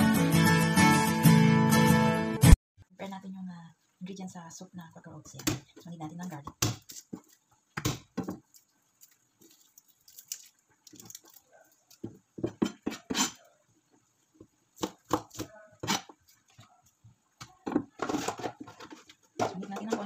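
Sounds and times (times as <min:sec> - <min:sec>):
knife chopping on board: 0:14.8 - 0:16.1.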